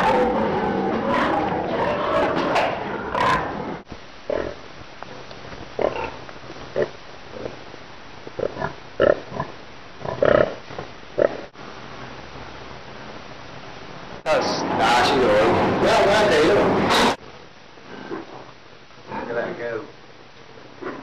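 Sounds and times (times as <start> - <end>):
pigs grunting: 0.0 - 4.6, 5.8 - 7.6, 8.4 - 11.5, 17.9 - 18.5, 19.1 - 19.6.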